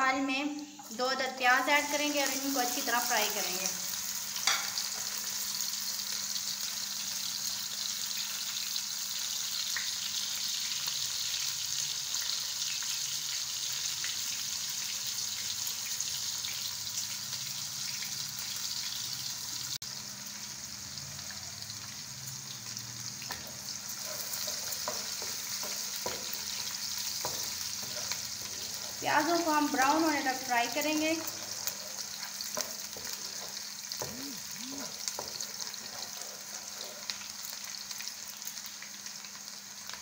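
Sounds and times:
onions sizzling in oil: 0.0s - 40.0s
wooden spatula scraping: 23.9s - 29.9s, 34.8s - 37.2s.

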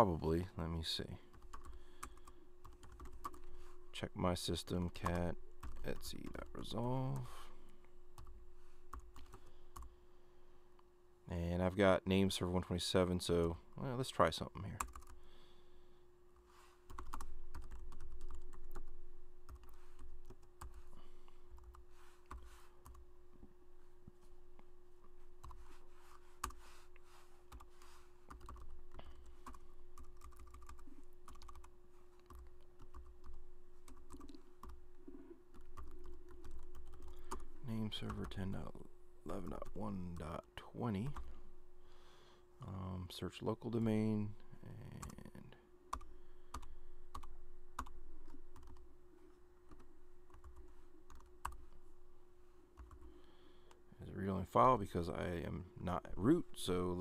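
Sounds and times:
faint steady hum: 0.0s - 57.0s
typing on keyboard: 1.3s - 3.5s, 16.9s - 18.9s, 28.3s - 34.8s, 35.5s - 37.4s, 46.0s - 47.9s, 48.5s - 48.8s, 49.7s - 51.6s.

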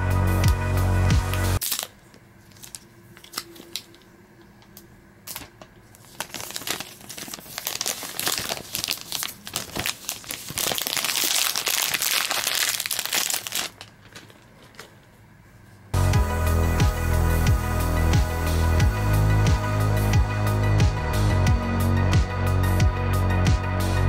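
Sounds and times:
plastic shrink-wrap crinkling: 1.6s - 4.0s, 5.3s - 15.1s.

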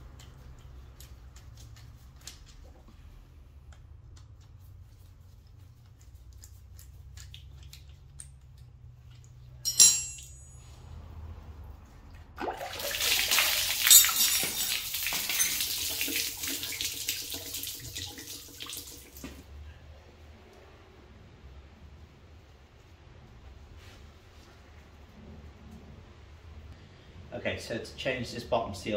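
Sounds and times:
sharp metal clank: 9.6s - 10.7s
coolant gushing and splashing: 12.2s - 19.5s.

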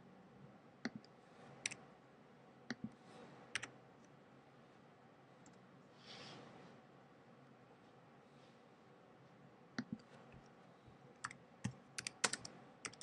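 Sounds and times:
keyboard keys clicking: 11.2s - 13.0s.

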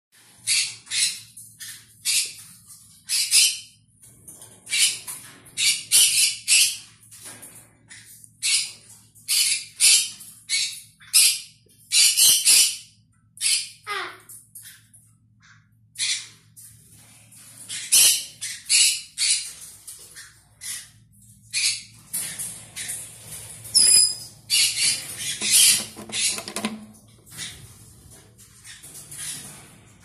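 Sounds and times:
parrots squawking: 23.7s - 26.7s.

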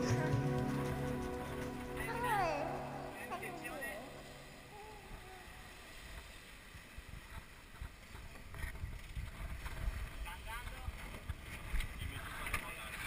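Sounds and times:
water rushing along hull: 0.0s - 13.0s
wind buffeting microphone: 7.0s - 12.5s.

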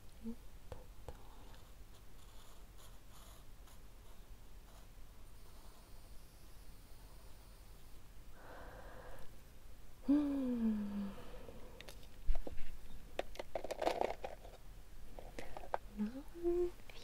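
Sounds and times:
falling hum-like vocal sound: 10.0s - 11.8s.

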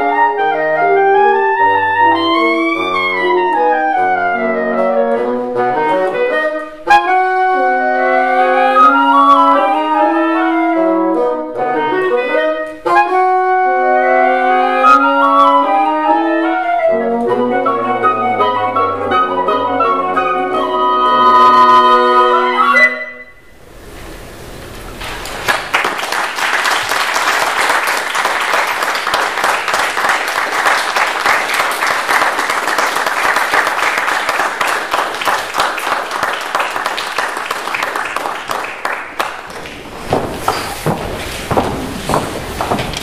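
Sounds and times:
woodwind quintet chord: 0.0s - 23.6s
audience applause: 25.0s - 40.5s.

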